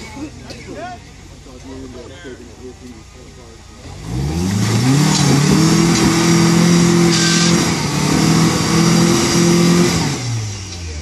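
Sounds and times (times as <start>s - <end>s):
truck engine revving hard: 3.8s - 11.0s.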